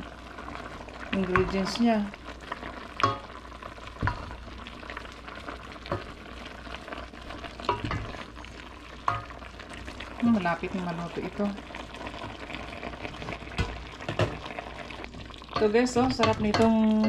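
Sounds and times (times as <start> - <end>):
broth sizzling: 0.0 - 17.0
spatula stirring soup: 0.2 - 10.2, 11.3 - 17.0
spatula knocking against pot: 15.6 - 17.0.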